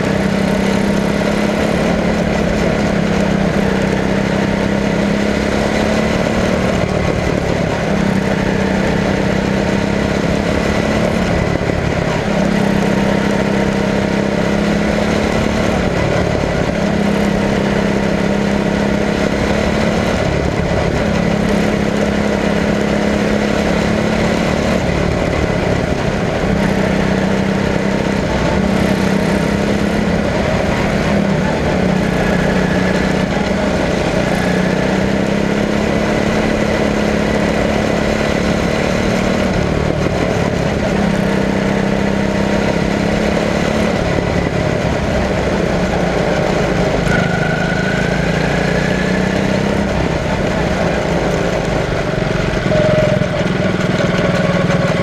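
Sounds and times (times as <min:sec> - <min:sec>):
small race car engine running: 0:00.0 - 0:55.0.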